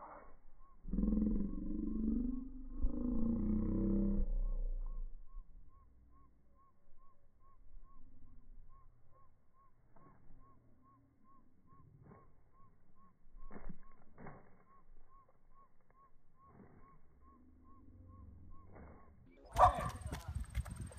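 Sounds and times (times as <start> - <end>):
footsteps on wood-chip mulch: 19.5 - 20.9.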